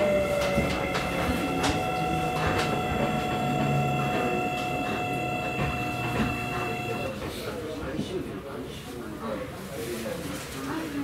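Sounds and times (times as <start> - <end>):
train inverter whine: 0.0 - 7.6
low rumble of train wheels: 0.0 - 8.2.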